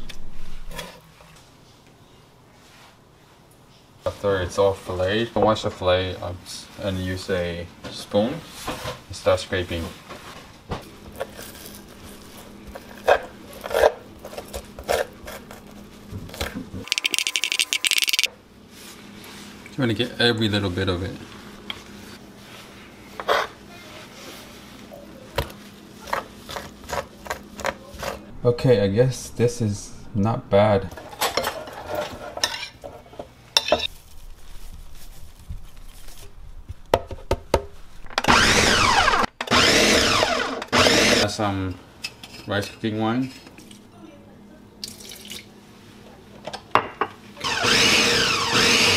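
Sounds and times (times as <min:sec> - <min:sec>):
blender chopping fish: 0:38.2 - 0:41.2, 0:47.4 - 0:48.9.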